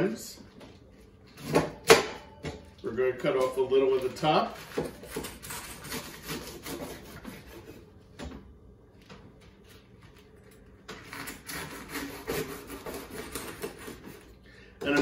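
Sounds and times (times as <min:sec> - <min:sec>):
knife sawing through vegetable: 0:04.5 - 0:07.9, 0:11.0 - 0:14.4.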